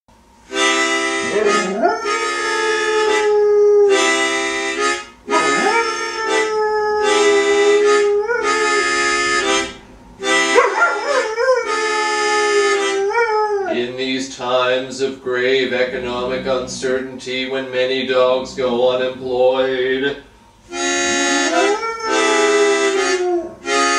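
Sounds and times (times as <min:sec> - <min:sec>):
instrument playing sustained chords: 0:00.6 - 0:13.9, 0:15.6 - 0:23.9
dog howling: 0:01.2 - 0:04.1, 0:05.3 - 0:09.1, 0:10.5 - 0:13.9, 0:15.9 - 0:17.1, 0:21.2 - 0:23.8.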